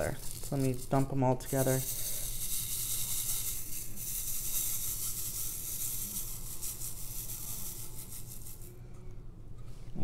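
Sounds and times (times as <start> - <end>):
tiny beads rattling on plastic tray: 0.0 - 8.7.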